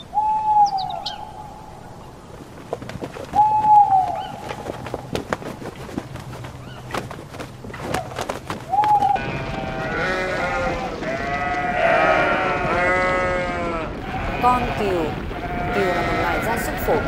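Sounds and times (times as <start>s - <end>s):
flock of sheep bleating: 9.2s - 17.0s.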